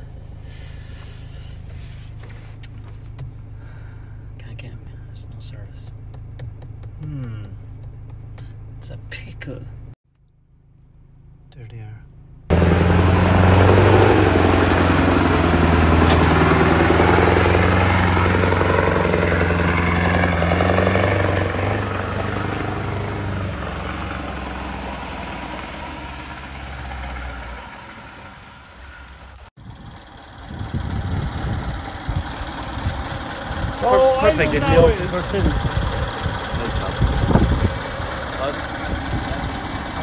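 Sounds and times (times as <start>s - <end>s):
lorry diesel engine running: 12.1s - 40.0s.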